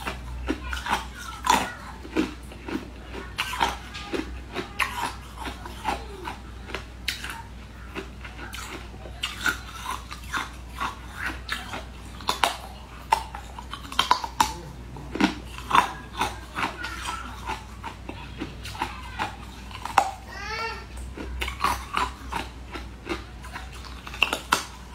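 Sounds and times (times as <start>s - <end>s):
crunching frozen ice treat: 0.0s - 24.9s.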